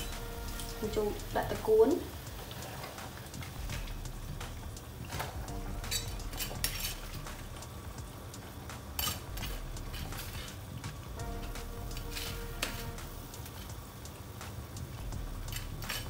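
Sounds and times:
low steady rumble: 0.0 - 1.8, 3.6 - 8.1, 9.3 - 10.4, 11.0 - 13.8, 15.0 - 16.0.

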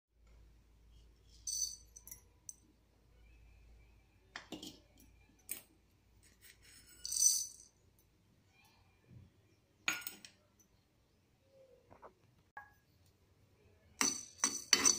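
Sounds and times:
seeds rattling in metal pan: 6.2 - 7.7.

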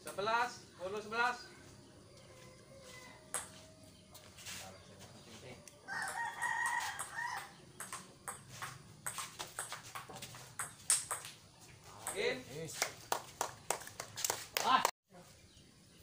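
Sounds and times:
rooster crowing: 2.1 - 4.0, 5.8 - 7.6
ping pong ball ticking: 7.0 - 11.4.

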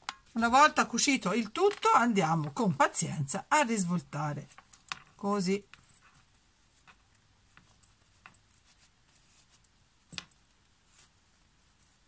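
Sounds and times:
fabric rustling: 3.8 - 12.0.

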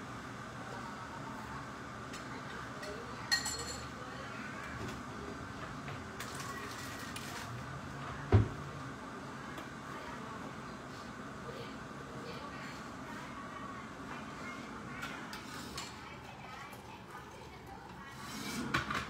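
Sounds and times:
steady background hum: 0.0 - 19.0
kitchenware clink: 2.8 - 3.9.

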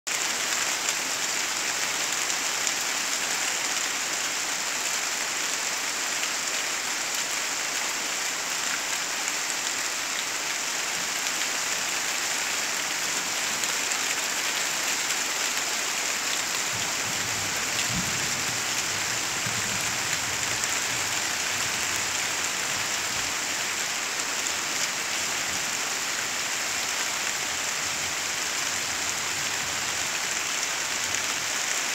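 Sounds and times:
heavy rain on leaves: 0.1 - 31.9.

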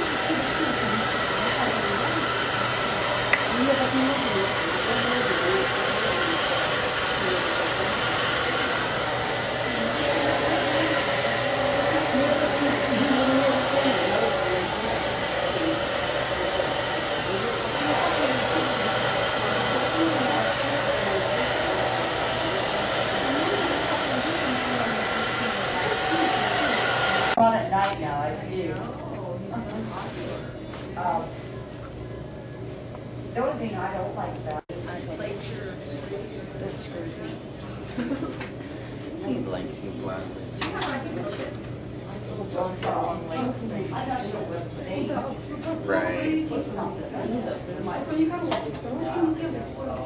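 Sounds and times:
hair dryer blowing: 0.0 - 27.4.

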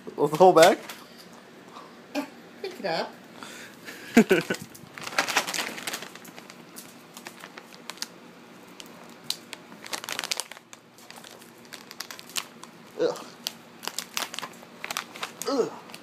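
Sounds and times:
plastic bag crinkling: 4.2 - 16.0.

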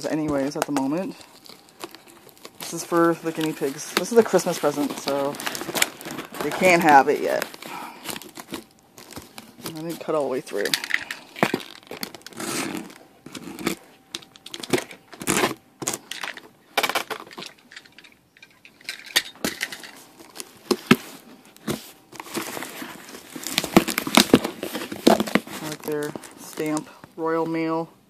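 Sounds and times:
cardboard box handling: 1.4 - 16.0, 20.2 - 26.8
box cutter slitting tape: 11.5 - 13.8, 14.5 - 16.1.

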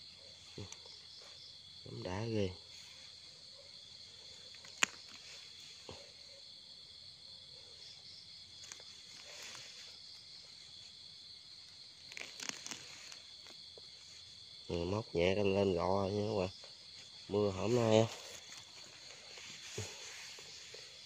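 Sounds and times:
night insects chorus: 0.0 - 21.0
knife scraping soil: 12.0 - 14.4, 17.0 - 21.0.

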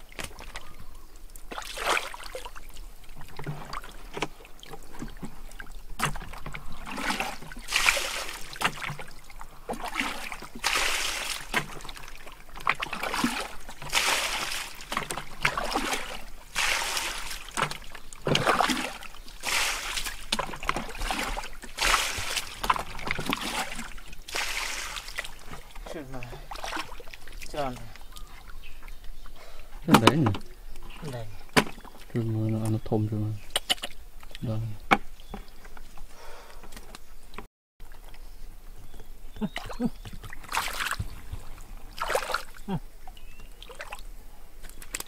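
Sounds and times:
fish splashing in water: 0.0 - 28.3, 39.4 - 45.0.

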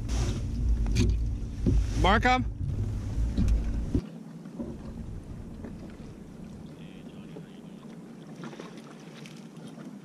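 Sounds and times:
low rumble: 0.0 - 4.0, 4.7 - 7.8
light knocks of kayak: 0.7 - 1.9, 3.3 - 10.0.

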